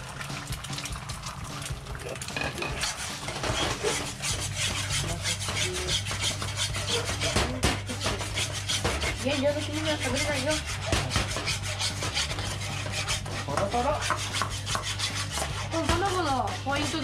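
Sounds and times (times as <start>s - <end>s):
egg sizzling: 0.0s - 17.0s
metal ladle scraping wok: 2.2s - 17.0s.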